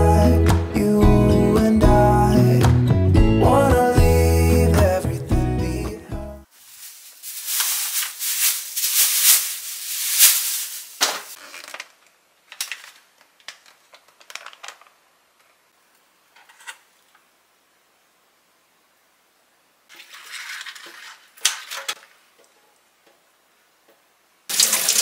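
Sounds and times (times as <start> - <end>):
plastic packets crinkling: 6.5 - 15.0.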